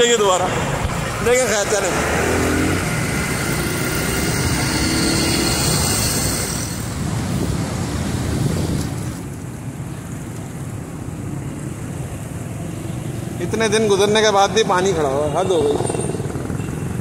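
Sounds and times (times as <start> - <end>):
motorcycle engine: 1.0 - 7.0
wind noise: 2.8 - 9.9.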